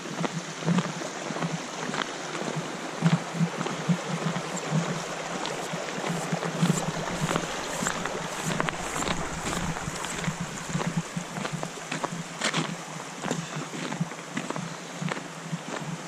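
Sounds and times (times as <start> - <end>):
creek water rushing: 0.0 - 16.0
footsteps crunching in snow: 3.1 - 15.2.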